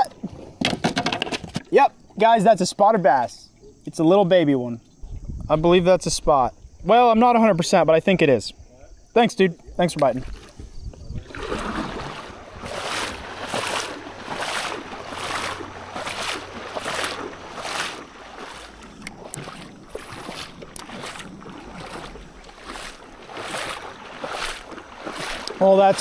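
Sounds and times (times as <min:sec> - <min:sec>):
paddle strokes splashing water: 0:09.9 - 0:26.0.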